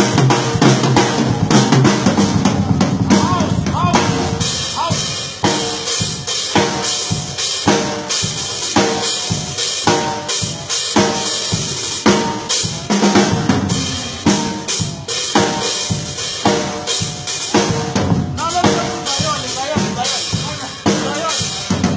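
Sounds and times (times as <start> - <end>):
hi-hat and cymbal strokes: 4.4 - 21.9.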